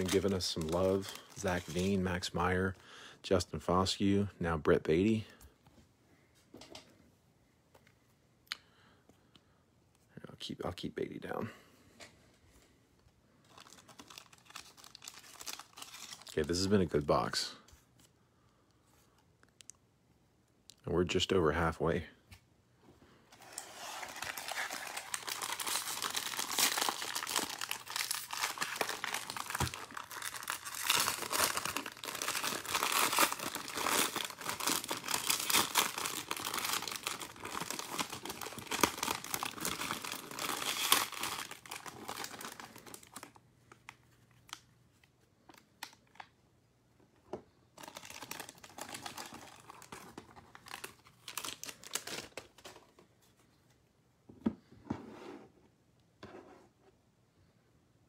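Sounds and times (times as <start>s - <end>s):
foil wrapper crinkling: 0.0s - 2.0s, 13.4s - 16.7s, 23.4s - 43.4s, 47.8s - 52.7s.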